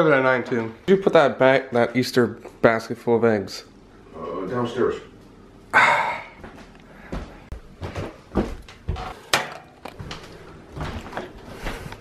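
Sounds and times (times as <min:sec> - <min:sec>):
footsteps on wooden floor: 0:06.4 - 0:09.2, 0:09.9 - 0:12.0.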